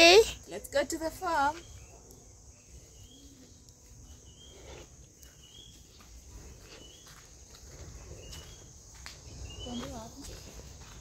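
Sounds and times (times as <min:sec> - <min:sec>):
footsteps on dirt path: 0:02.6 - 0:11.0.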